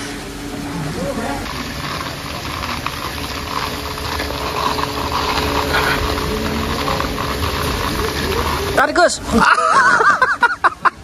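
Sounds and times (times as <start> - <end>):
small engine running: 0.6 - 11.0.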